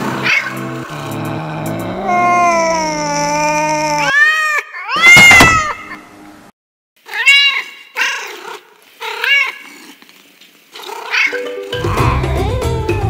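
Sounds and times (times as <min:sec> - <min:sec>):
cat meowing: 0:01.3 - 0:06.0, 0:07.1 - 0:09.7.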